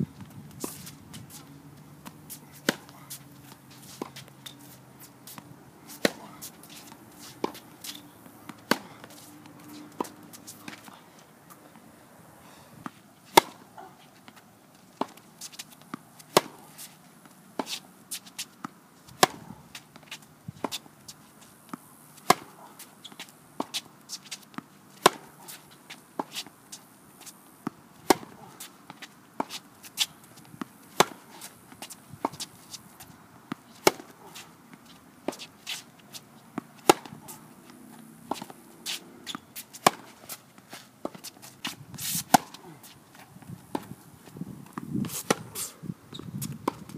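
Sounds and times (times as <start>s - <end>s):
tennis racket hitting ball: 0.6s - 11.0s, 13.3s - 13.9s, 15.0s - 16.8s, 18.5s - 20.9s, 21.7s - 24.4s, 25.0s - 26.5s, 27.6s - 32.8s, 33.5s - 40.4s, 41.0s - 44.0s, 44.7s - 45.7s, 46.4s - 46.9s.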